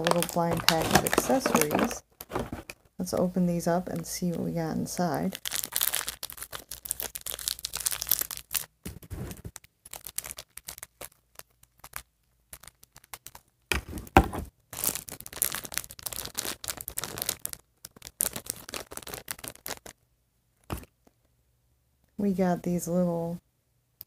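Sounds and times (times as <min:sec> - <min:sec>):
plastic packs tearing and crinkling: 0:00.0 - 0:02.9, 0:05.2 - 0:14.0, 0:14.7 - 0:20.0.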